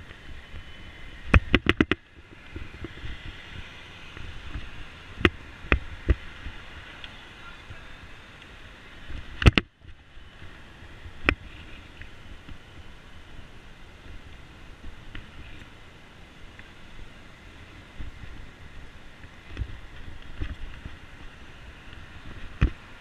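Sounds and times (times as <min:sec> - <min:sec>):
bicycle knocking and rattling: 0:00.0 - 0:06.6, 0:17.7 - 0:23.0
street noise: 0:00.0 - 0:23.0.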